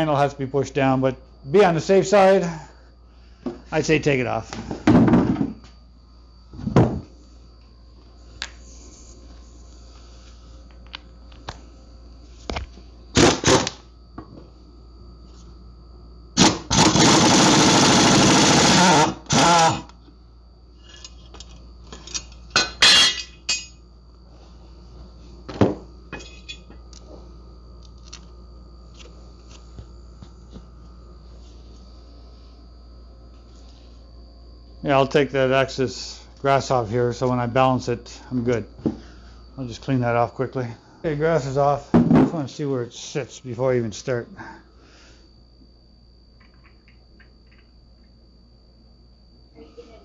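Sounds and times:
air impact wrench bursts: 13.2s - 13.8s, 16.4s - 19.9s.

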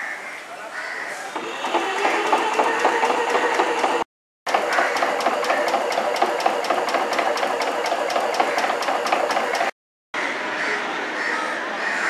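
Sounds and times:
tram machinery clattering: 1.3s - 9.7s.

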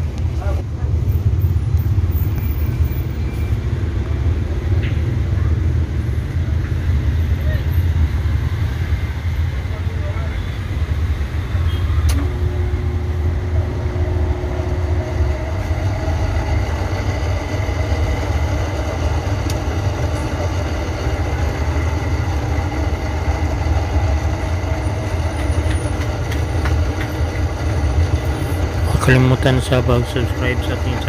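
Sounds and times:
air conditioner compressor humming: 10.8s - 31.0s.

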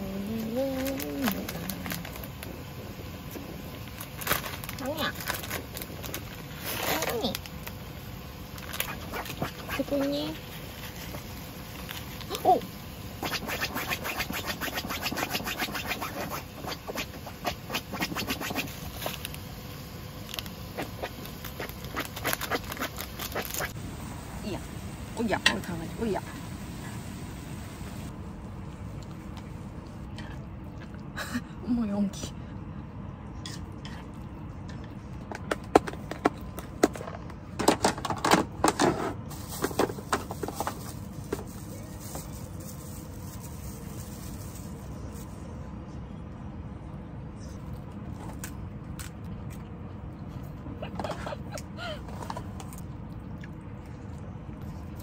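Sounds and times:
plastic bag crinkling: 3.8s - 7.8s
low background noise: 39.3s - 55.0s.

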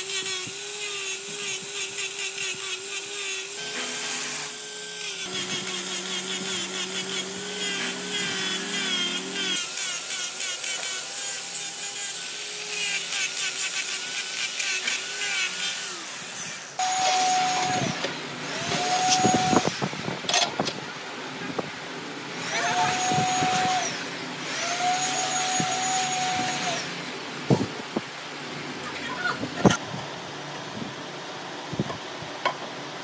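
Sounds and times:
electric power tool whirring: 0.0s - 20.4s, 22.3s - 27.7s.

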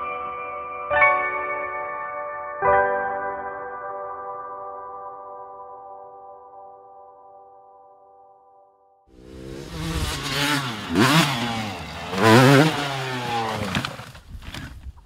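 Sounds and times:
dirt bike engine revving: 9.2s - 14.7s.

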